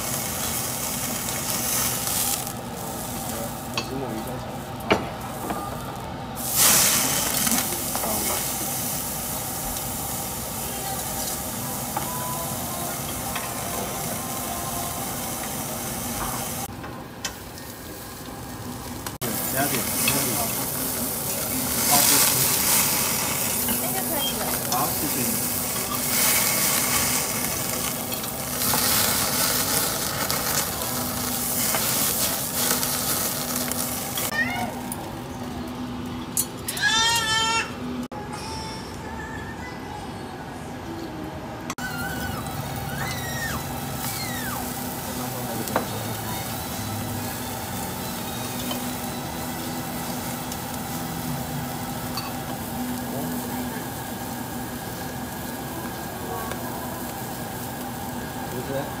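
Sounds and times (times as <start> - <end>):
meat sizzling on a grill: 0.0 - 35.7, 41.8 - 59.0.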